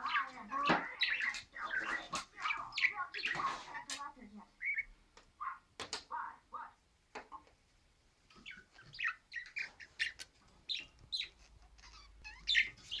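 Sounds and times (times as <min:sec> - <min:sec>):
budgerigar chirping and warbling: 0:00.0 - 0:03.9, 0:04.6 - 0:05.6, 0:08.4 - 0:13.0.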